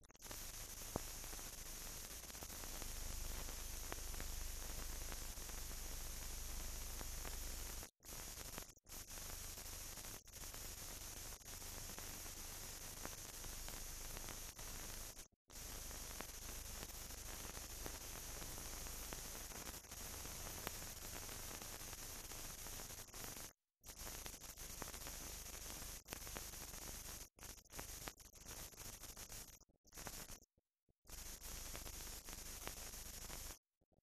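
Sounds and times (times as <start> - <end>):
film transfer hiss and hum: 0.0 - 27.2.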